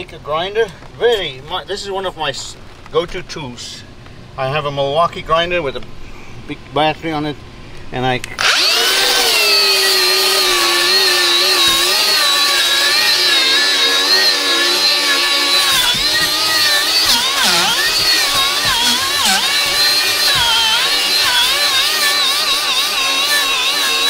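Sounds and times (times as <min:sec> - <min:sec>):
wire brush grinder whining on metal: 0:08.4 - 0:24.0.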